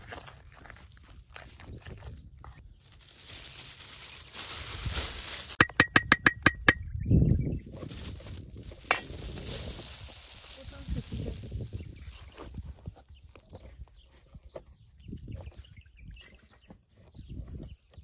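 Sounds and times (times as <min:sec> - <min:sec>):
metal spoon knocking on metal bowl: 0:05.6 - 0:06.8.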